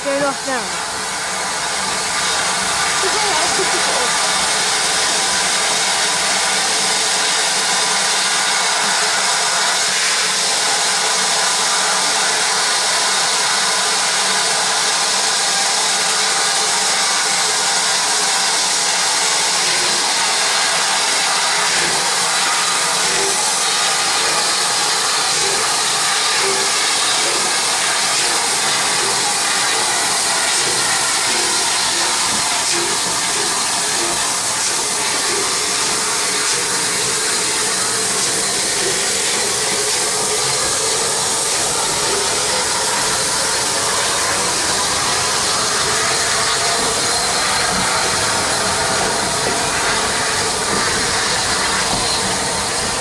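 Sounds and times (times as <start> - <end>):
steam hissing from locomotive: 0.0 - 53.0.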